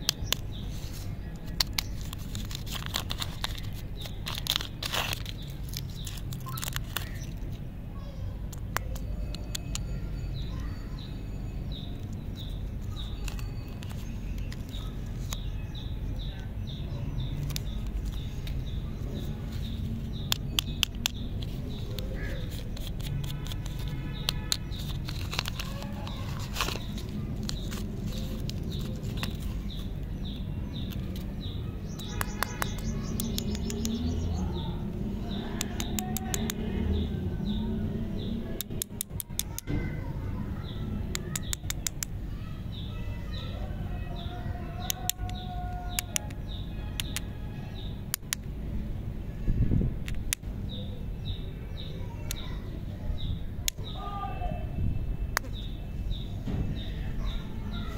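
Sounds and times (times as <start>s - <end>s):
candy wrapper crinkling: 0.0s - 7.6s, 17.3s - 31.3s
bird chirping: 0.0s - 48.4s.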